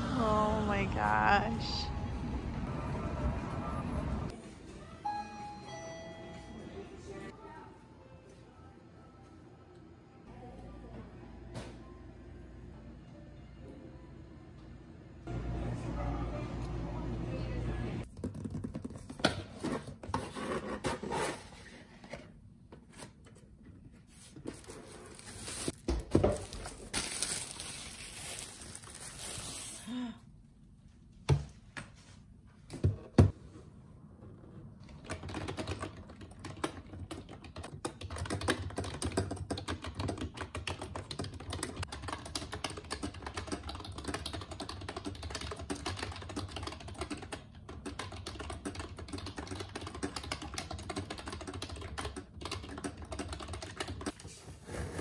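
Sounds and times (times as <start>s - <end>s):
packaging and box handling: 24.5s - 29.8s
rapid keyboard typing: 34.8s - 54.2s.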